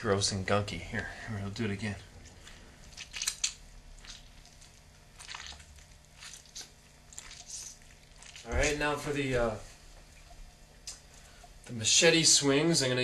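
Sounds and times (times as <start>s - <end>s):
knife squelching through lemon: 2.1s - 8.8s.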